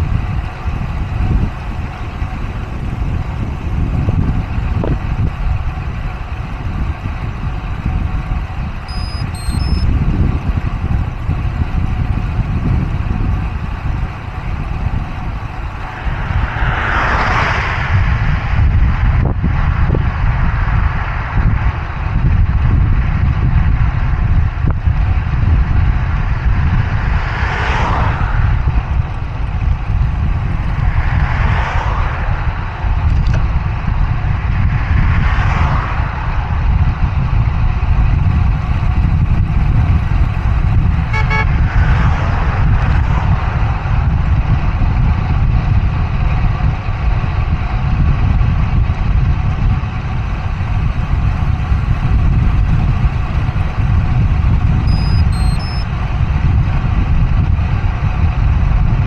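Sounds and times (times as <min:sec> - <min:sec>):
motor vehicles passing: 0:00.0 - 0:59.0
wind rushing over microphone: 0:00.0 - 0:59.0
short horn toot: 0:08.9 - 0:09.9, 0:41.1 - 0:41.6, 0:54.9 - 0:55.8.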